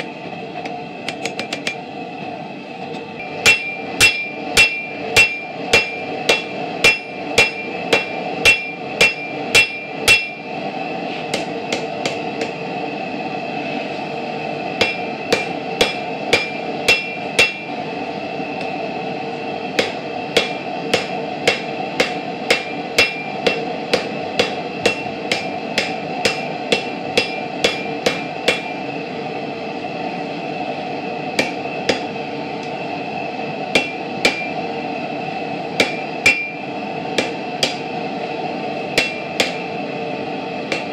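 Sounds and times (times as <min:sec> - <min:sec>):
steady rushing noise: 0:00.0 - 0:40.9
hammer ringing on anvil: 0:03.2 - 0:10.5, 0:14.8 - 0:17.7, 0:19.8 - 0:28.8, 0:31.4 - 0:32.1, 0:33.7 - 0:34.6, 0:35.8 - 0:36.6, 0:37.2 - 0:37.8, 0:39.0 - 0:39.7.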